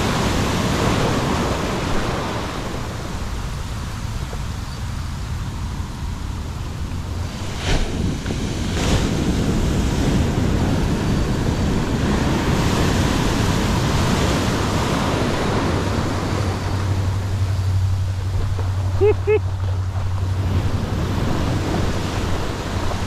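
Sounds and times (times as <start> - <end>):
ocean waves breaking: 0.0 - 23.0.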